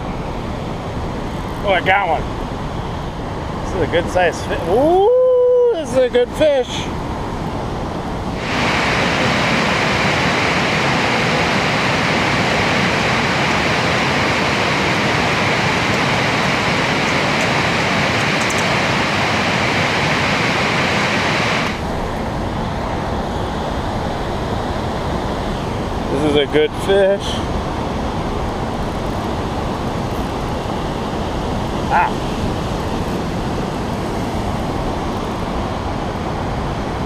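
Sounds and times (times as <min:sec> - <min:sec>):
river rushing over rocks: 0:03.1 - 0:26.2.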